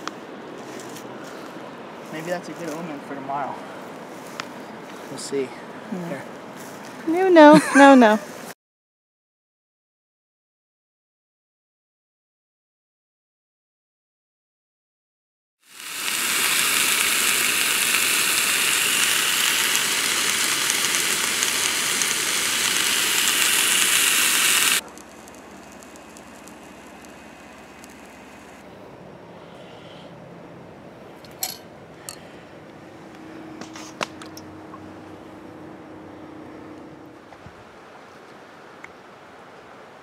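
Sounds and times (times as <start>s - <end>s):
sausages sizzling in a frying pan: 15.7s - 28.5s
faint hiss: 15.7s - 28.6s
steady low hum: 15.7s - 37.8s.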